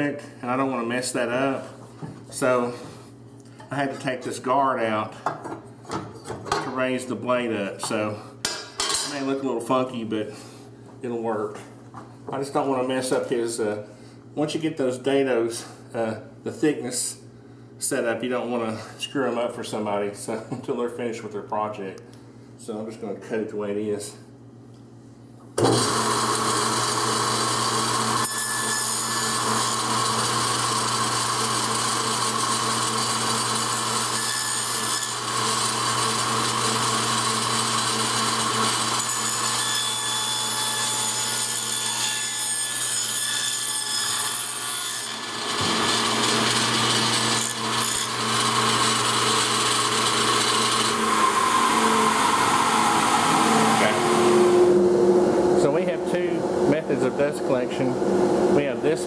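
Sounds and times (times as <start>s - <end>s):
saw motor hum: 25.6s - 42.0s, 44.8s - 59.0s
table saw cutting wood: 25.6s - 59.0s.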